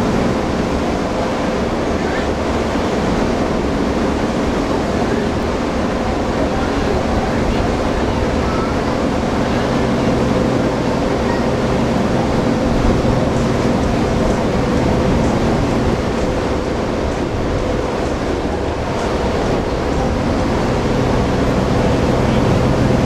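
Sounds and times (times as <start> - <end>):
ship engine hum: 0.0 - 23.0.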